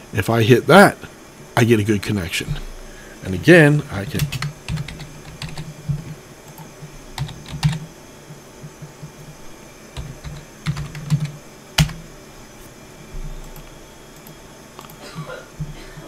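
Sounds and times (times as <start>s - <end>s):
typing on computer keyboard: 4.0s - 7.9s, 10.0s - 12.0s.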